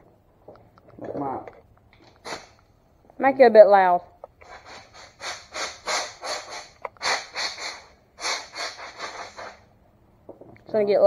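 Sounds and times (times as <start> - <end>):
air blow gun hissing puffs: 2.2 - 2.6, 4.4 - 9.7.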